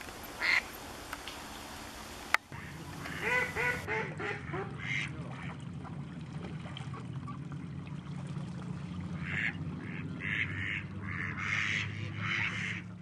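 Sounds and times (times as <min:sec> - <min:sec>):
low hum: 0:00.0 - 0:13.0
ducks quacking: 0:00.4 - 0:00.7, 0:02.5 - 0:05.6, 0:09.2 - 0:13.0.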